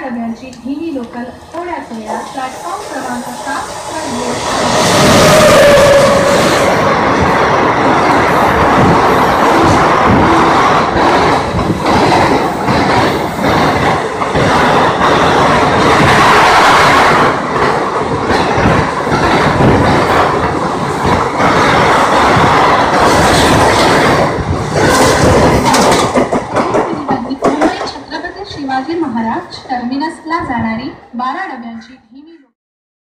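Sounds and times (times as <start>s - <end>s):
train wheels clattering over rail joints: 6.9s - 28.3s.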